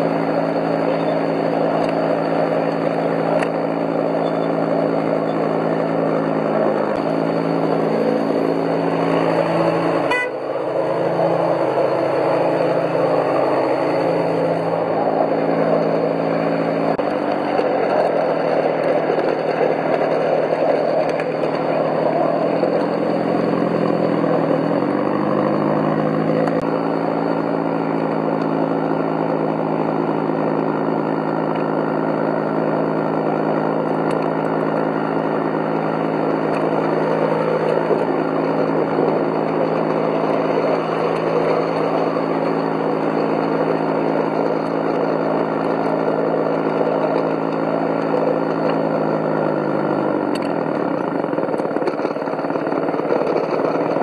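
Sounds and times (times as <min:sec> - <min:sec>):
simulated diesel engine: 0:00.0 - 0:54.0
wheels running on track: 0:00.0 - 0:54.0.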